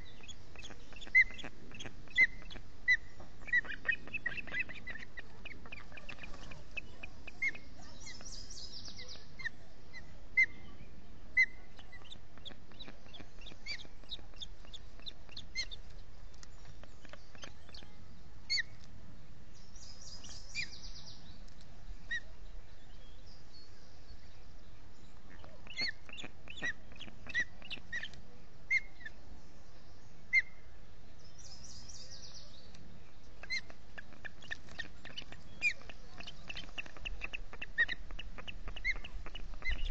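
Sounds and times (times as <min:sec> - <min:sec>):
rapid high twittering: 0:33.4 - 0:39.9.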